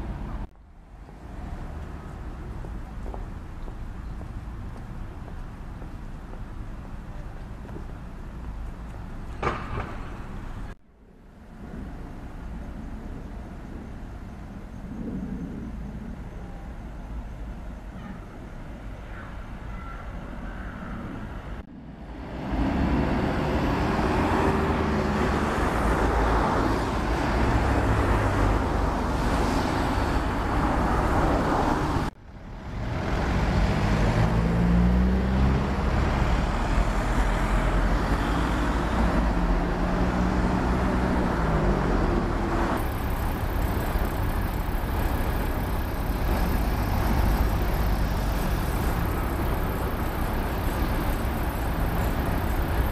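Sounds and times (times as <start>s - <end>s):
car engines: 0.0s - 52.9s
tyre noise on wet road: 22.2s - 52.9s.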